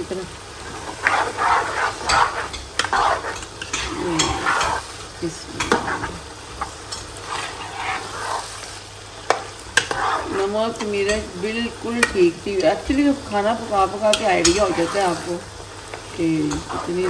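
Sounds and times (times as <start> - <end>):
sizzling in oil: 0.0 - 17.0
spoon scraping pot: 0.7 - 4.9, 5.6 - 8.6, 9.3 - 11.3, 14.1 - 15.3.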